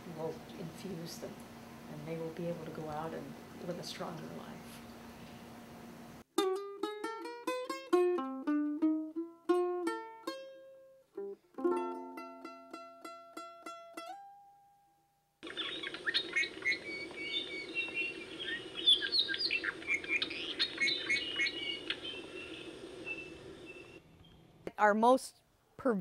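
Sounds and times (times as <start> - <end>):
steady background hiss: 0.0 - 6.3, 15.4 - 26.0
plucked string music: 6.3 - 14.7
birds chirping and calling: 15.4 - 24.4.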